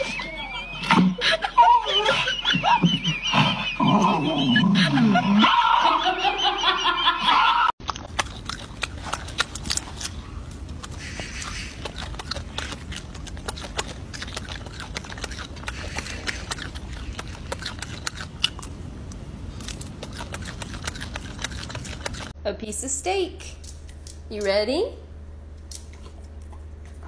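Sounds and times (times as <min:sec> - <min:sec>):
low background hum: 0:00.0 - 0:27.0
monkey chewing fruit crunching: 0:07.8 - 0:22.4, 0:25.6 - 0:27.0
voice: 0:22.4 - 0:23.6, 0:24.3 - 0:25.0.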